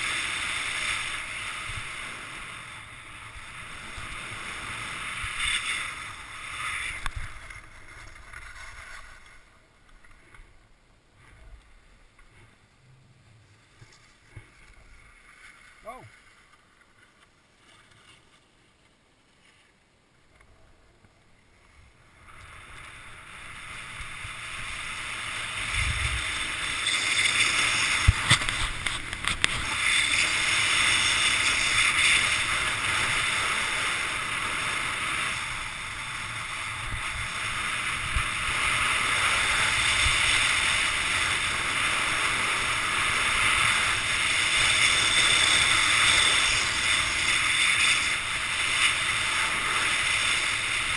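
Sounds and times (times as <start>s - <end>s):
skis running over packed snow: 0.0s - 9.5s, 22.6s - 50.9s
wind rushing past helmet: 24.0s - 50.9s.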